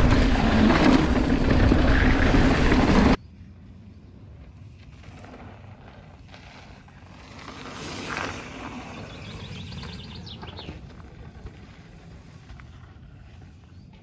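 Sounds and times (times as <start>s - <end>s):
bike tyres on gravel: 0.0s - 3.2s, 4.2s - 14.0s
birds chirping: 8.6s - 10.9s.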